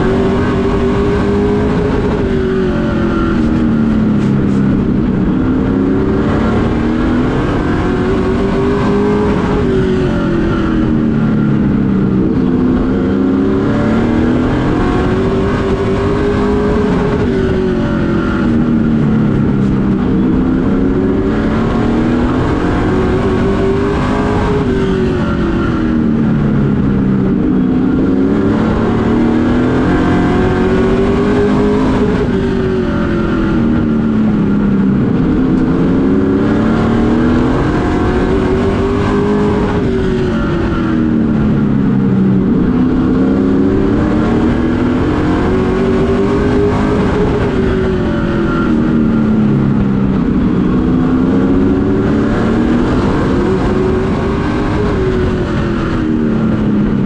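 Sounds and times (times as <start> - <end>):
race truck engine revving: 0.0 - 57.0.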